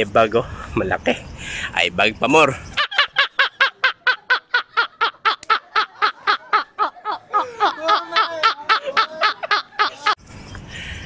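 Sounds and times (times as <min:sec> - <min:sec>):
men laughing hard: 0:02.8 - 0:10.2.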